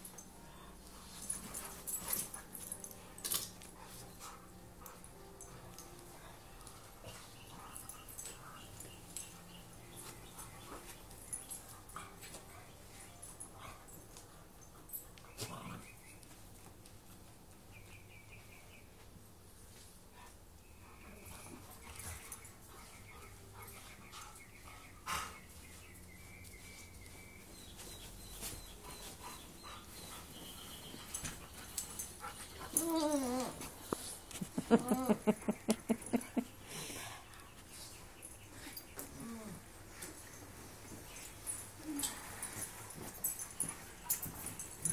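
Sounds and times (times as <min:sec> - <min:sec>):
dog whimpering: 0:32.7 - 0:33.7.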